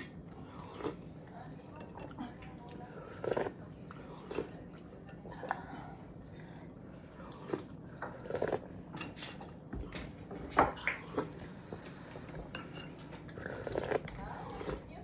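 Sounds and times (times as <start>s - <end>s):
chewing: 0.0s - 15.0s
cutlery clinking on plates: 8.9s - 11.0s, 12.2s - 13.2s.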